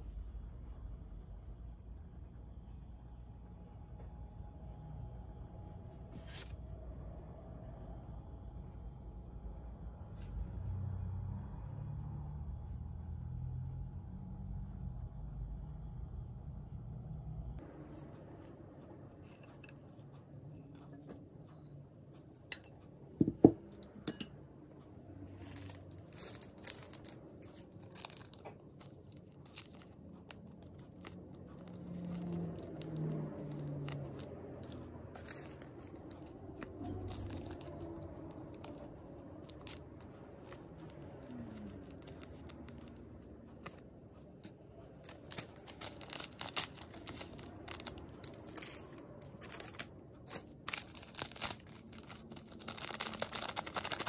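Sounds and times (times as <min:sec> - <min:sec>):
plastic packets crinkling: 0:25.3 - 0:43.8, 0:45.0 - 0:54.0.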